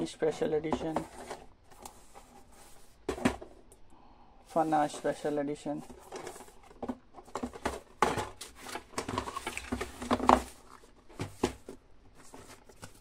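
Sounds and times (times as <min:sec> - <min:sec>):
plastic cases clacking: 0:00.0 - 0:01.9, 0:05.8 - 0:13.0
plastic sleeve rustling: 0:04.5 - 0:13.0.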